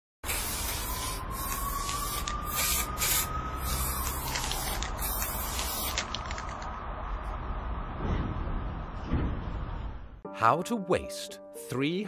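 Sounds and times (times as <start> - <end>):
spray paint can hissing: 0.2 - 6.6.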